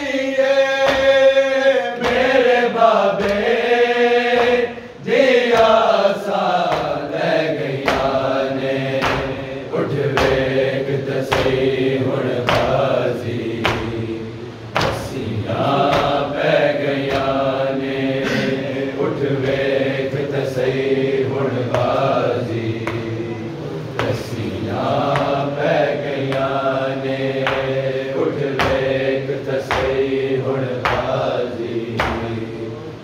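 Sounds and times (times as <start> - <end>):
men chanting in unison: 0.0 - 33.0
hands slapping chests: 6.6 - 7.0, 8.9 - 9.5, 12.4 - 12.8, 14.7 - 15.2.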